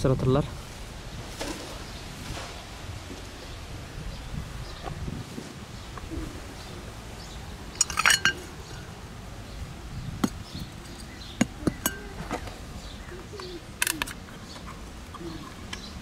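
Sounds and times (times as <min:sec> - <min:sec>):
pet bowl and can clinking: 0:07.8 - 0:08.5.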